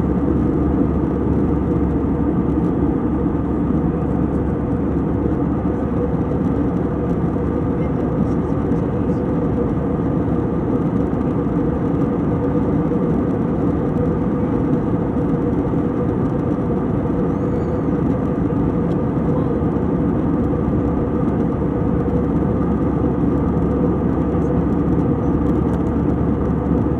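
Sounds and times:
airliner cabin engine rush: 0.0 - 26.9.

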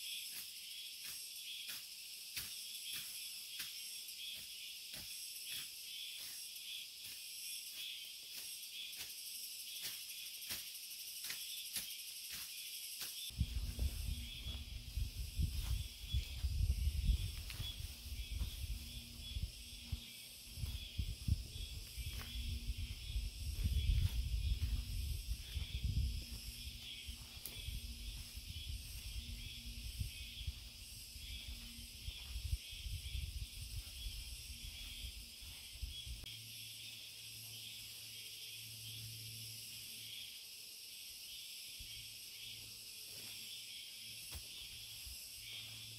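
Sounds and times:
hand hoe scraping soil: 0.0 - 14.8
insects chorus: 0.0 - 45.9.

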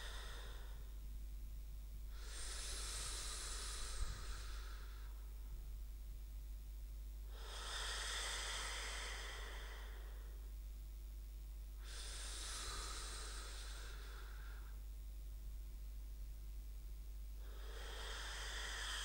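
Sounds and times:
slow airy breathing: 0.0 - 1.0, 2.1 - 5.7, 7.3 - 10.6, 11.8 - 15.0, 17.4 - 19.0
steady low hum: 0.0 - 19.0.

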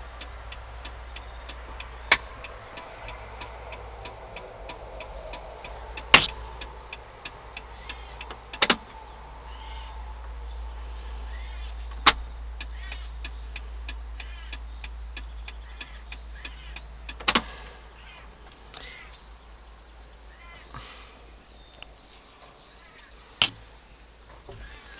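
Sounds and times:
birds chirping: 0.0 - 24.9
steady low rumble: 0.0 - 24.9
rapid ticks: 0.1 - 8.8, 12.0 - 17.4
sharp knocks: 6.1 - 6.4.

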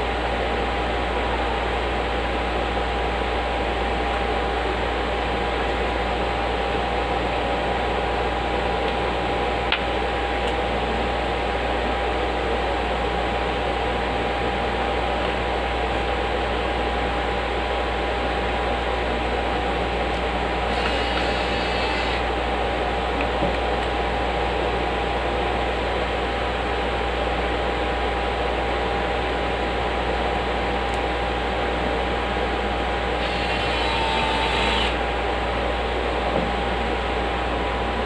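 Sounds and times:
constant hum: 0.0 - 38.0
fan whir: 0.0 - 38.0
handheld power tool running: 20.7 - 22.3, 33.2 - 35.0.

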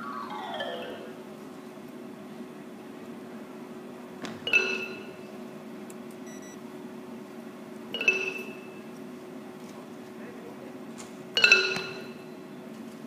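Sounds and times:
xylophone notes struck with mallets: 4.5 - 5.2, 8.0 - 8.6, 11.4 - 12.2.

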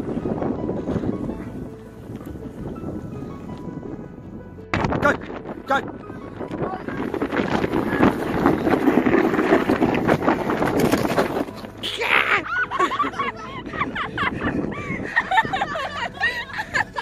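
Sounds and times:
snow crunching under sled and paws: 6.9 - 11.8.

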